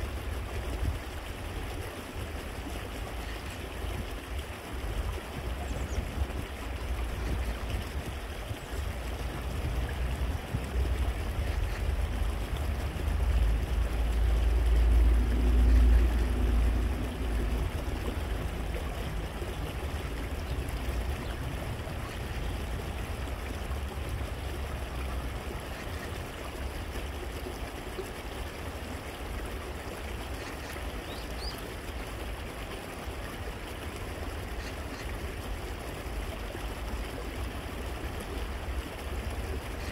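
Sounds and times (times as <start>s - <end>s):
stream trickling over stones: 0.0s - 39.9s.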